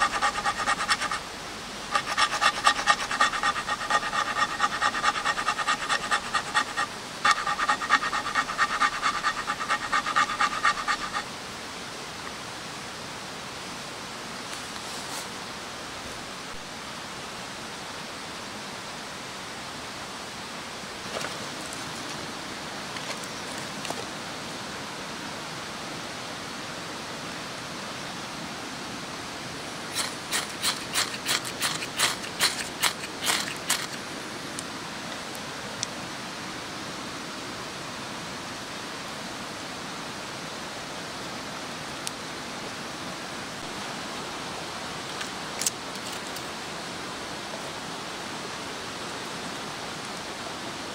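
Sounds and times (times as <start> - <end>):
ferro rod scraped with striker: 0.0 - 1.2, 1.9 - 11.3, 29.9 - 34.0.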